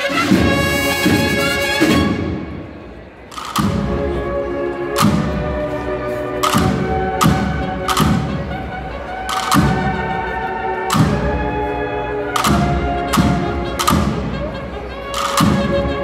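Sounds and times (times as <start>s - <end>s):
slow heavy drum strokes: 4.9s - 10.2s.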